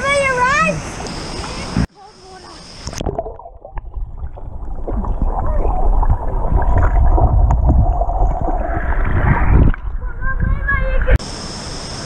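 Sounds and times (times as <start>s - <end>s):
underwater bubbling: 2.5s - 11.2s
muffled underwater rumbling: 2.6s - 11.2s
underwater knocks: 2.9s - 10.5s.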